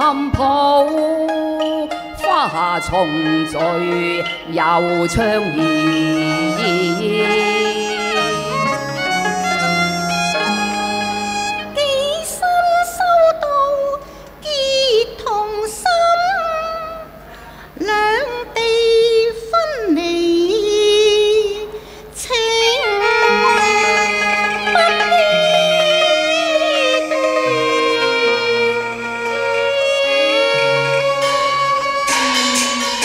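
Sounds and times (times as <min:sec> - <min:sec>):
woman singing opera: 0:00.0 - 0:10.5, 0:11.7 - 0:17.1, 0:17.8 - 0:33.0
instrumental ensemble: 0:00.0 - 0:12.5, 0:22.8 - 0:33.0
held string notes: 0:00.0 - 0:12.8, 0:22.4 - 0:33.0.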